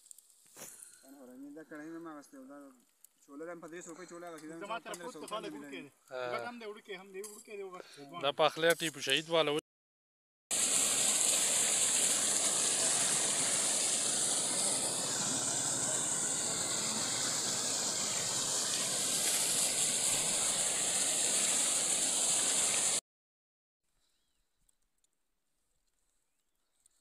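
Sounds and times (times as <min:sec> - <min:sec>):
water pouring into tanks: 0:10.5 - 0:23.0.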